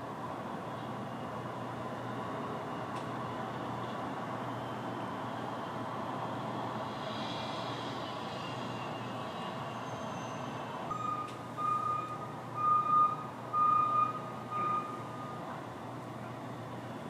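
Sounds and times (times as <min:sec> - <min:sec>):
city noise hum: 0:00.0 - 0:17.0
reversing alarm beeping: 0:09.6 - 0:15.4.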